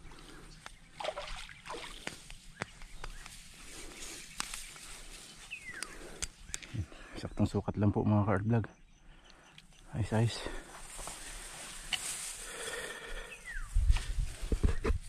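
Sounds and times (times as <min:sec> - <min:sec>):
water splashing: 0:01.0 - 0:02.2.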